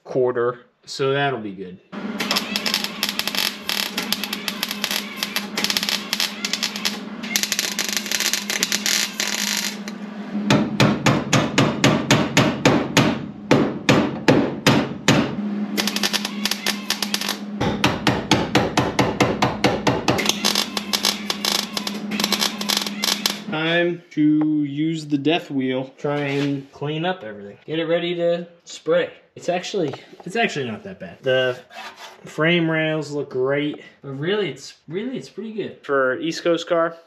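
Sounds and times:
welder crackling: 2.0 - 10.1, 15.8 - 18.4, 19.0 - 23.6
sharp metallic knocks: 4.1 - 23.5.

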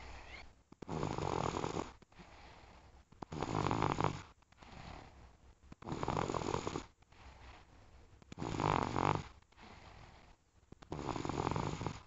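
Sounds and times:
loud snores: 0.0 - 2.6, 3.3 - 5.1, 5.8 - 6.9, 8.3 - 10.2, 10.9 - 12.0
quiet breathing: 0.0 - 12.0.

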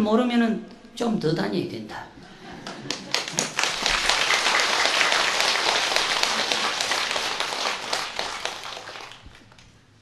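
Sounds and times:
audience applauding: 2.6 - 9.6.

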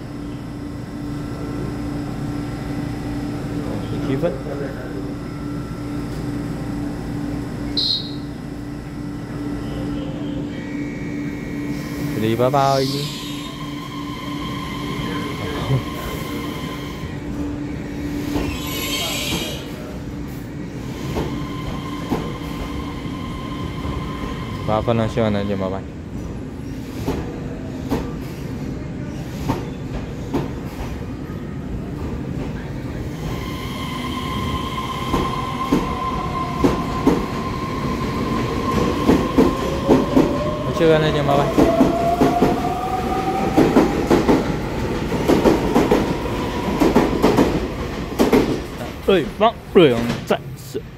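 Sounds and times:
electric train whine: 0.0 - 26.0, 32.9 - 48.7
high-pitched wheel squeal: 12.8 - 14.1, 18.4 - 19.6
train wheels knocking on rail joints: 46.8 - 48.7.

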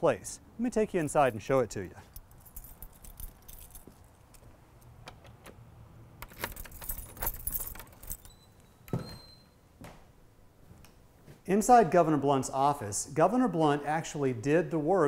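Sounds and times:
keys jangling in a lock: 2.0 - 4.5, 6.2 - 8.6.

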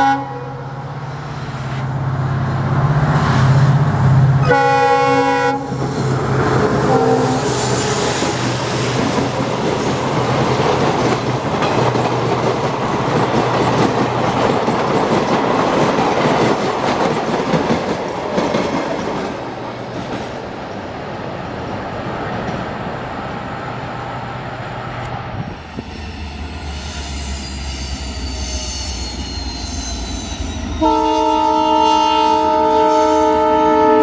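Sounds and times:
train wheels clattering over rail joints: 8.2 - 20.4.

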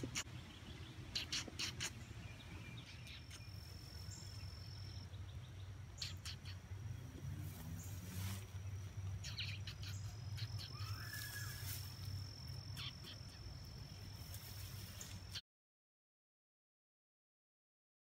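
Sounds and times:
bird chirps: 0.0 - 15.4
high-pitched insect trill: 7.4 - 15.4.

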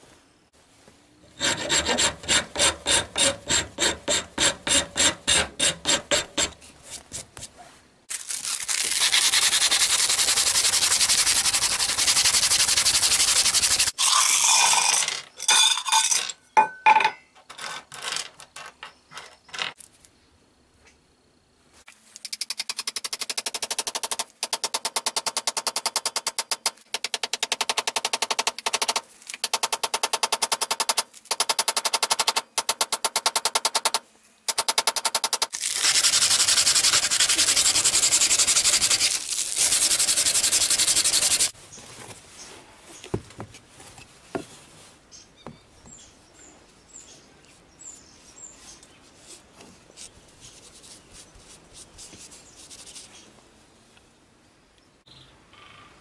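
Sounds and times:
hammer tapping steel wedge: 1.4 - 6.6, 23.0 - 35.5
rubbing like sanding: 8.9 - 13.9, 35.2 - 41.6.

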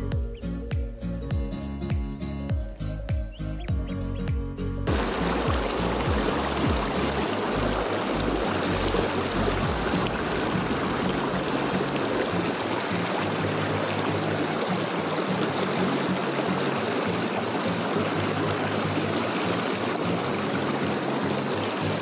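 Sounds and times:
quiet background music: 0.0 - 22.0
stream rushing over rocks: 4.9 - 22.0.

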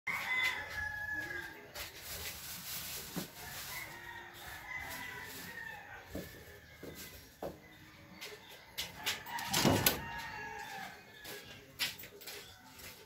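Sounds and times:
rooster crowing: 0.1 - 1.6, 3.4 - 7.0, 9.0 - 11.4.

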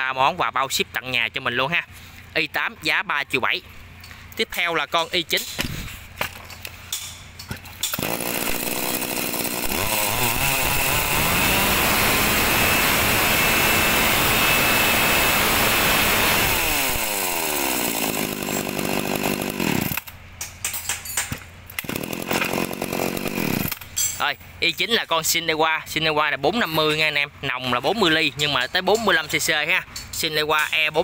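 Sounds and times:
chainsaw engine revving: 7.8 - 20.2, 21.7 - 24.0.

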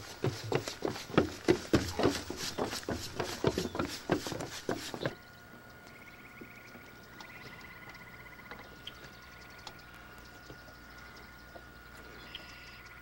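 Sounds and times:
footsteps on wooden boardwalk: 0.0 - 5.2.

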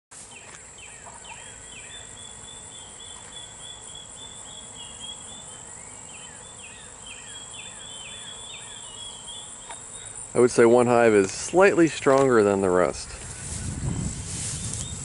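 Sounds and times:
insects singing: 0.2 - 15.0
bird chirping: 0.3 - 10.2.

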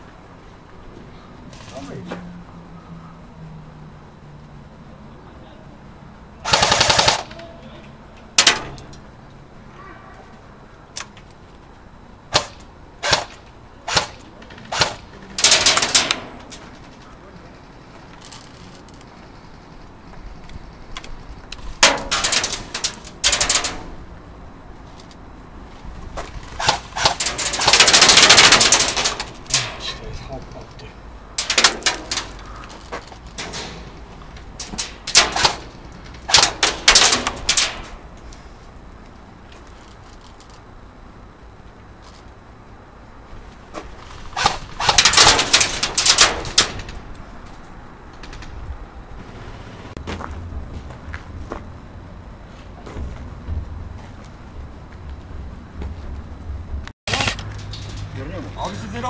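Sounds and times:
airsoft gunshots: 6.4 - 7.4, 12.3 - 16.4, 26.6 - 29.8, 35.0 - 35.7, 36.3 - 37.9, 44.3 - 46.8
airsoft rifle firing bursts: 6.4 - 7.4, 26.6 - 29.0.

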